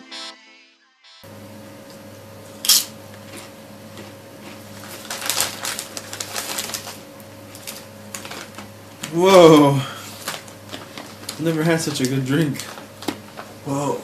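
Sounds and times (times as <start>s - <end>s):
low electrical hum: 1.2s - 14.0s
plastic wrapper crinkling: 4.7s - 13.6s.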